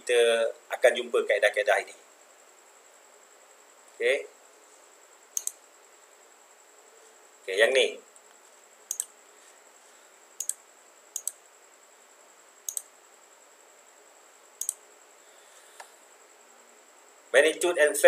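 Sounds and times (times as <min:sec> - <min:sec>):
computer mouse button clicking: 0:05.4 - 0:05.6, 0:08.9 - 0:09.1, 0:10.4 - 0:10.6, 0:11.2 - 0:11.4, 0:12.7 - 0:12.9, 0:14.6 - 0:14.8.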